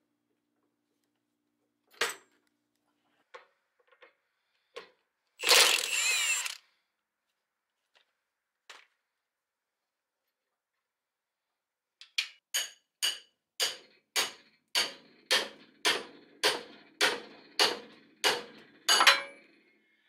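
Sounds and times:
impact wrench: 0:05.4 - 0:06.6.

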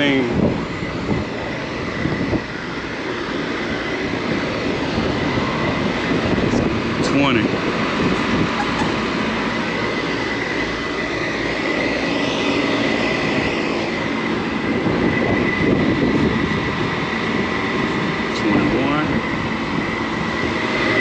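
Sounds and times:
hvac units mechanical drone: 0:00.0 - 0:21.0
thin steady whine: 0:00.0 - 0:21.0.

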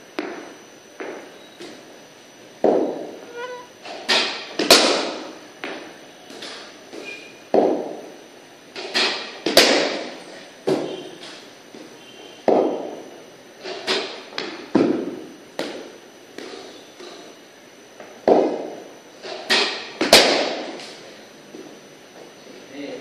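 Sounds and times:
bat striking cricket ball: 0:02.6 - 0:03.2, 0:09.1 - 0:10.1, 0:12.4 - 0:13.0, 0:20.0 - 0:20.6
cricket ball pitching: 0:02.6 - 0:03.4, 0:04.6 - 0:08.1, 0:12.4 - 0:13.0, 0:18.2 - 0:21.0.

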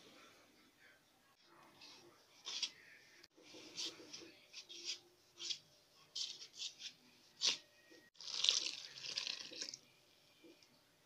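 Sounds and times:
liquid pouring into flour: 0:08.2 - 0:09.8.

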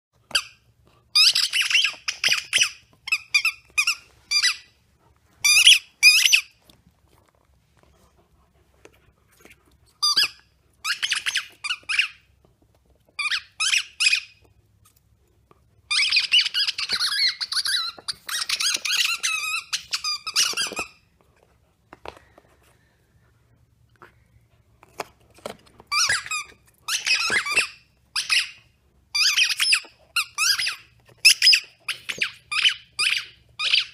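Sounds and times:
squeaker toy squeaking: 0:00.3 - 0:04.8, 0:05.4 - 0:06.6, 0:10.0 - 0:12.3, 0:13.2 - 0:14.5, 0:15.9 - 0:21.0, 0:25.9 - 0:33.9.

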